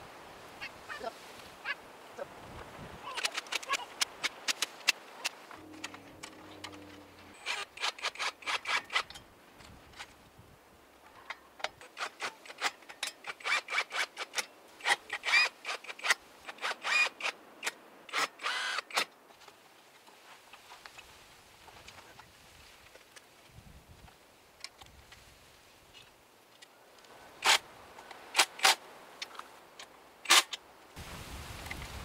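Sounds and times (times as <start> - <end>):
quick metallic clicks and scraping: 3.1 - 10.2, 11.3 - 19.1.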